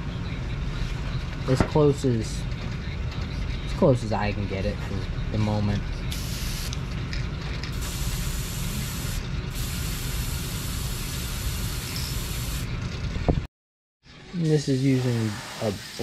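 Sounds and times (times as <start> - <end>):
airbrush air hiss: 6.1 - 6.7, 7.8 - 12.6.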